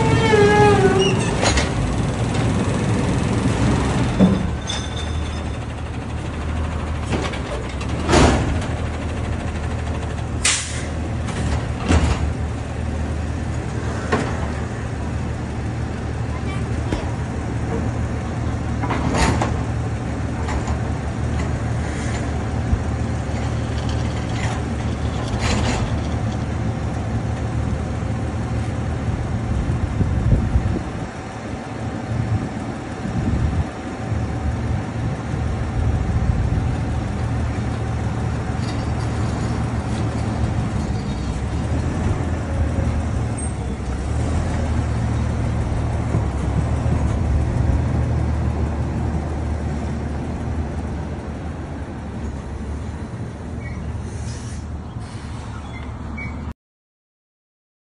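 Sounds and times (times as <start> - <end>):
diesel truck engine running: 0.0 - 56.3
steel dumpster clattering: 3.8 - 12.5.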